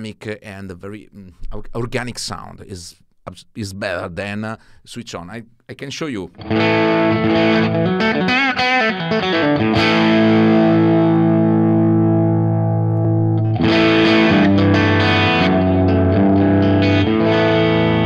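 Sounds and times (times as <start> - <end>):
distorted electric guitar: 6.4 - 18.0.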